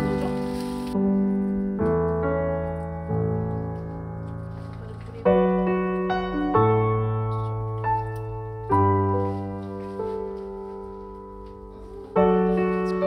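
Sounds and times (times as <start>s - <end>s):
slow piano chords: 0.0s - 13.0s.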